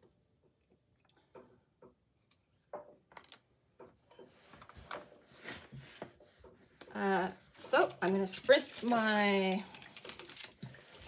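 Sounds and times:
soft paper rustle: 8.2 - 11.0.

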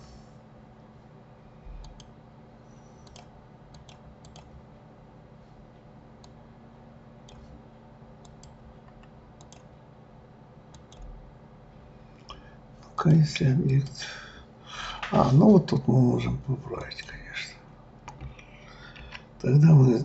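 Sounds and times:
low electrical hum: 0.0 - 20.0
computer mouse clicking: 1.8 - 2.1, 3.0 - 4.5, 7.3 - 7.6, 8.2 - 9.7, 10.7 - 11.1, 18.1 - 19.3.

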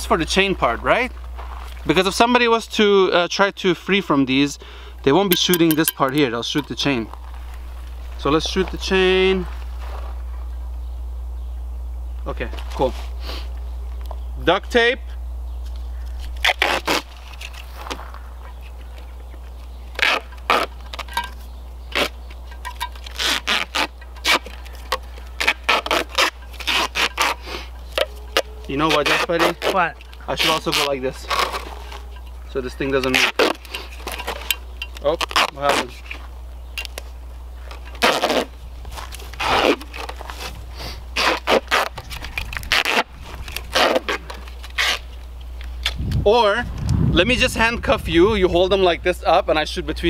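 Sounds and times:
duct tape ripping off roll: 16.2 - 18.0, 19.9 - 21.2, 21.9 - 22.4, 23.0 - 32.0, 33.0 - 36.2, 37.7 - 46.2.

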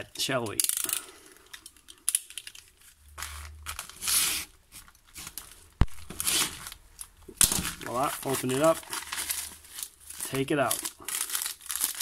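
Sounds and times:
paper tearing and crinkling: 5.1 - 6.8, 7.4 - 12.0.

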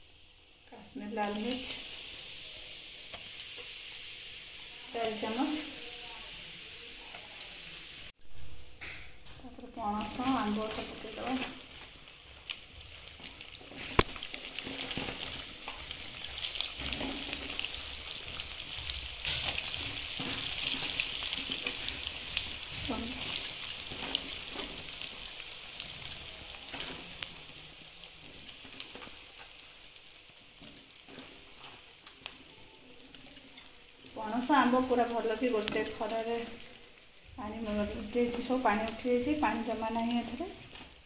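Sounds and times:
oil sizzling and crackling in pan: 0.0 - 41.0.

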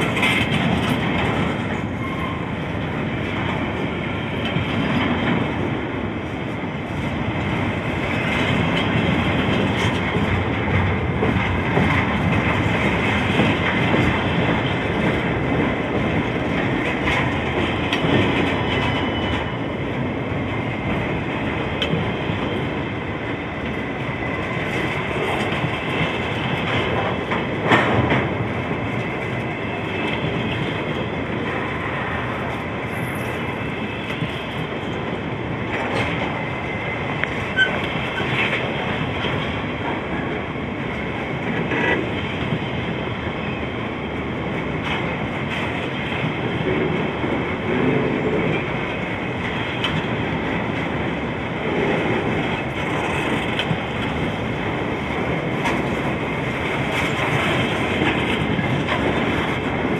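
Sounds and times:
sharp rail clicks: 0.0 - 2.3, 51.7 - 59.9
train wheels rumbling on rails: 0.0 - 59.9.

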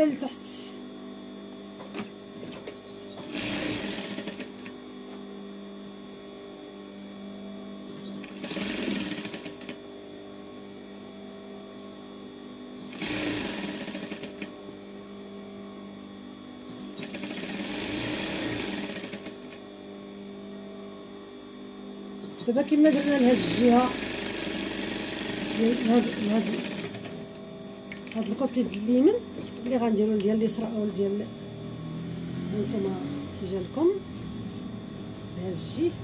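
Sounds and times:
sewing machine stitching: 3.1 - 4.7, 7.9 - 9.8, 12.9 - 14.5, 16.8 - 19.4, 22.3 - 27.2
sewing machine motor humming: 3.1 - 4.8, 7.9 - 9.8, 12.9 - 14.6, 16.7 - 19.6, 22.3 - 29.8.

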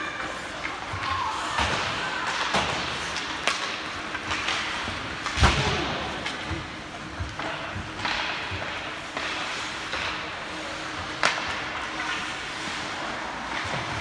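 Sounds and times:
skate blades scraping ice: 0.0 - 14.0
stick hitting puck: 1.0 - 6.5, 7.2 - 12.5.

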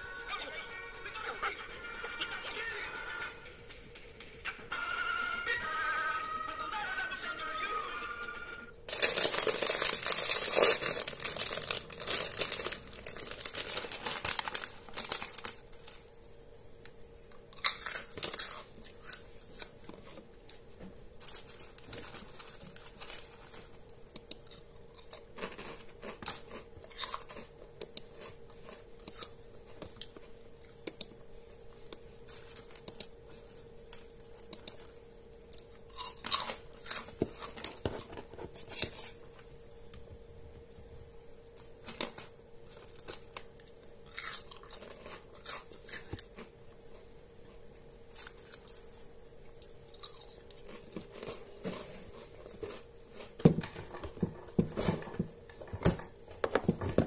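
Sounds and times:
faint steady hum: 0.0 - 57.0
wrapper tearing and crinkling: 8.9 - 16.1, 17.6 - 19.8, 21.2 - 23.7.

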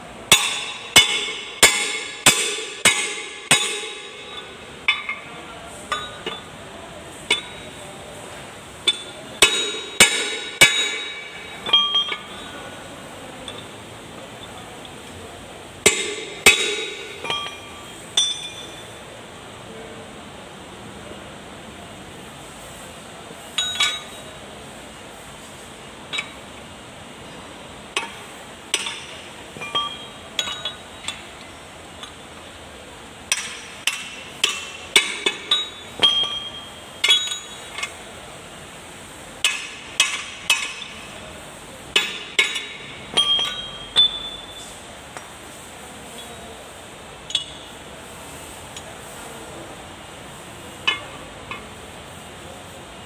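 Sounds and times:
metal clinks and knocks: 0.3 - 5.3, 15.9 - 18.9, 23.5 - 24.3, 28.0 - 32.2, 33.3 - 38.0, 41.9 - 44.8.

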